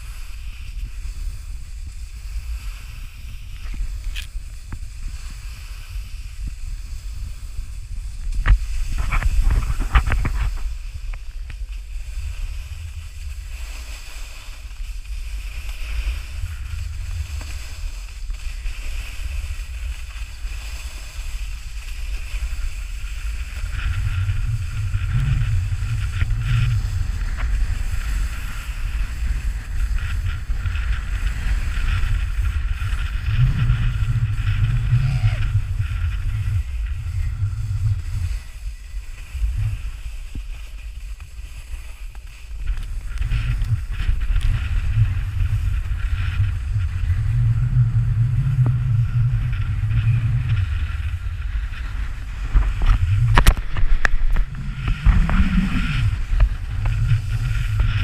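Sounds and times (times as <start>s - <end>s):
snowboard scraping over snow: 0.0s - 58.0s
wind rumbling on microphone: 0.0s - 58.0s.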